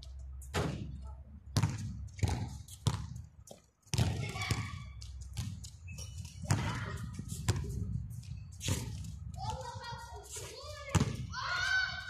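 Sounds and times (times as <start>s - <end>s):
basketball bouncing on concrete: 0.5s - 7.8s, 10.9s - 11.3s.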